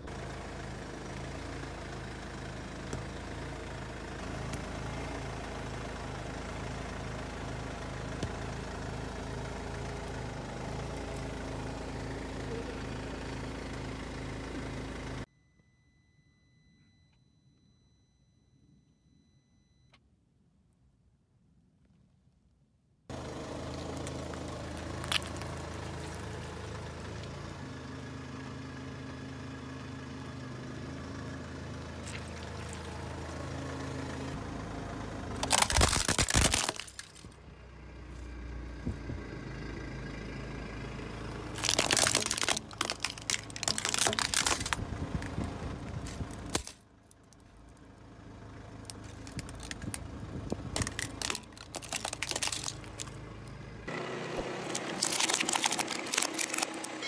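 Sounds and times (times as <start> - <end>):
car engine running: 0.0 - 15.3, 23.1 - 57.0
plastic cracking and crunching: 24.0 - 25.6, 35.4 - 37.4, 41.6 - 47.4, 48.8 - 53.2, 54.4 - 57.0.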